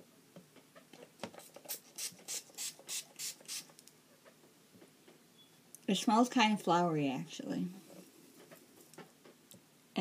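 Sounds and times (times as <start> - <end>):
spray bottle hissing sprays: 1.6 - 3.7.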